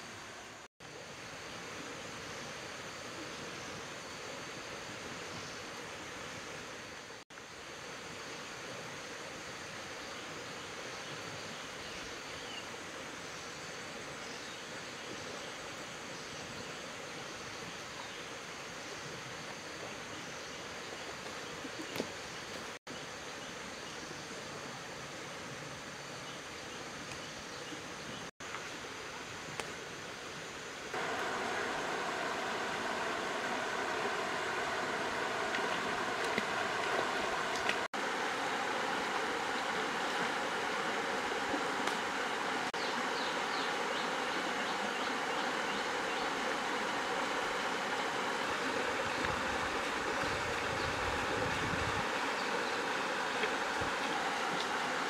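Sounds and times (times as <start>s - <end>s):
small stream running: 0.0s - 55.0s.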